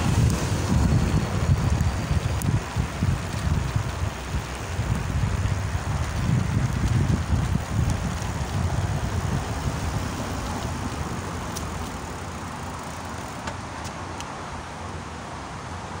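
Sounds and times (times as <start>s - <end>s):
wind buffeting microphone: 0.0s - 13.2s
bicycle tyres rolling on brick: 0.0s - 14.3s.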